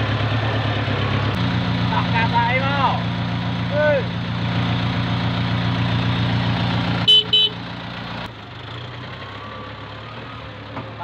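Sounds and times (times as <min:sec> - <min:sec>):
tractor engine running: 0:00.0 - 0:11.0
horn toots: 0:07.0 - 0:07.6.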